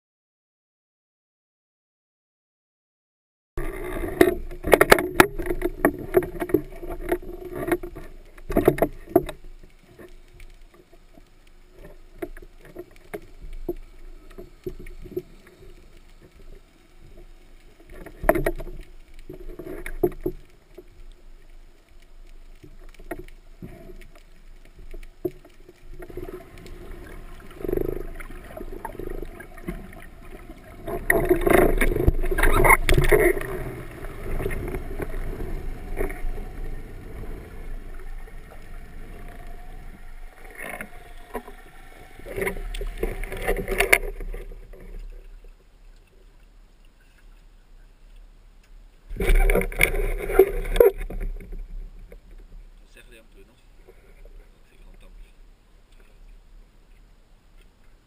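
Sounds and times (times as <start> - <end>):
water sloshing and splashing: 3.6 - 55.3
rush of water: 3.6 - 58.0.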